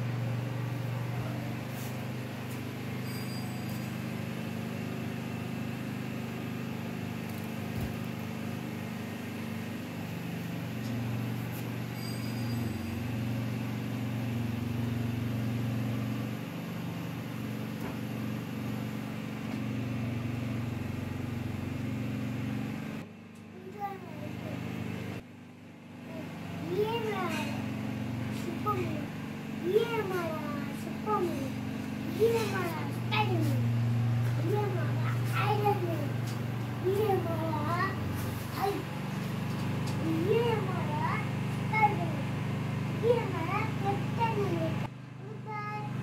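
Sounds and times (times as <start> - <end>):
mechanical hum: 0.0 - 46.0.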